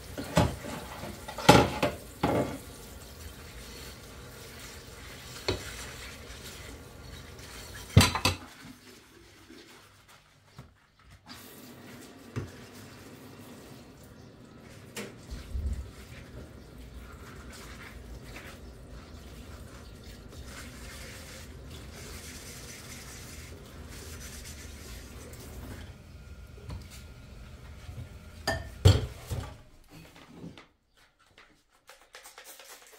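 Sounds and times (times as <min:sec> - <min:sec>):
water running into a sink: 0:00.0 - 0:09.9, 0:11.3 - 0:29.5
dishes clattering: 0:00.2 - 0:02.6, 0:07.8 - 0:08.6, 0:28.4 - 0:29.6.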